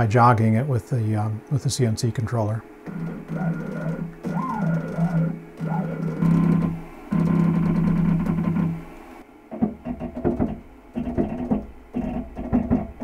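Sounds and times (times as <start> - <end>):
low hum: 2.6 - 9.2.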